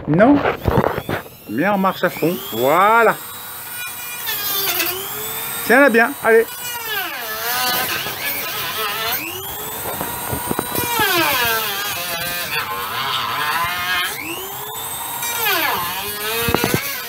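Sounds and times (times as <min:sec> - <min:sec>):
rotary tool whining while cutting: 0:00.2 - 0:17.0.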